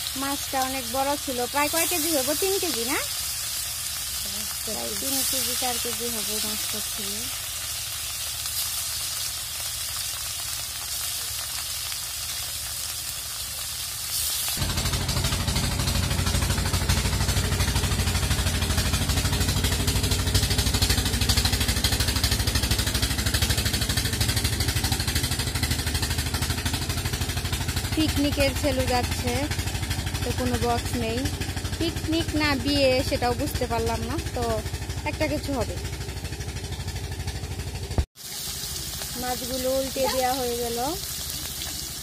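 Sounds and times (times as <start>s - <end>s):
fish sizzling in hot oil: 0.0s - 33.2s, 34.0s - 42.0s
boat engine chugging: 14.6s - 41.2s.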